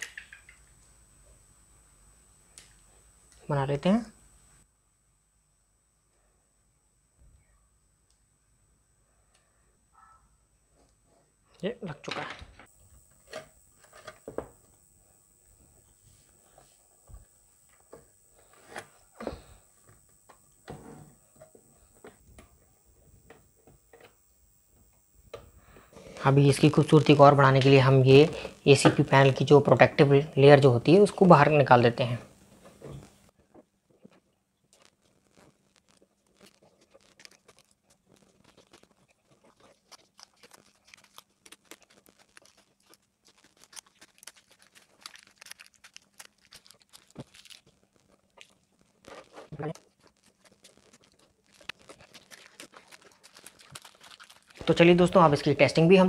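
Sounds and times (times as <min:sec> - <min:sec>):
plastic film peeling off: 0:34.8 - 0:54.7.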